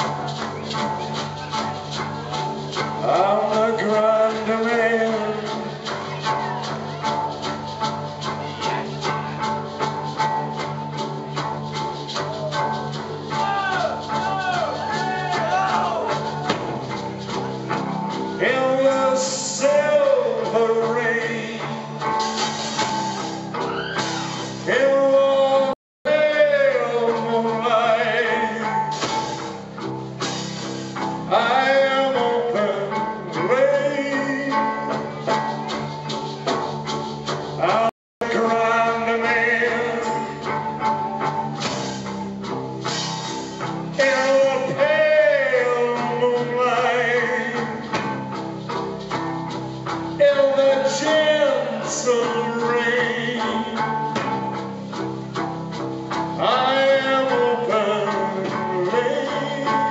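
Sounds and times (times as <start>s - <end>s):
man singing: 0.0s - 9.6s, 12.2s - 16.8s, 18.2s - 22.5s, 23.6s - 29.6s, 31.2s - 36.0s, 37.6s - 41.3s, 43.9s - 48.4s, 50.2s - 54.6s, 56.4s - 59.9s
rock band playing: 0.0s - 59.9s.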